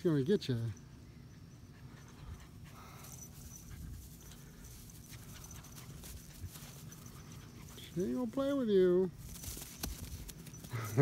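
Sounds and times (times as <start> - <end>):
dog panting: 1.3 - 8.2.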